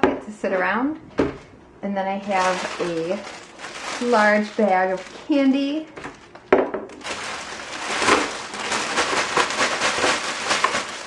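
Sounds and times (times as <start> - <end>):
wrapper rustle: 2.2 - 11.0
chocolate bars pouring into a pail: 7.0 - 11.0.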